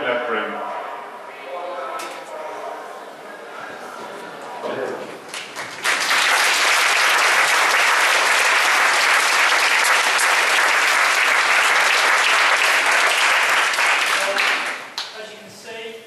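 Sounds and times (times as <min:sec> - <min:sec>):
children applauding: 0:05.3 - 0:15.1.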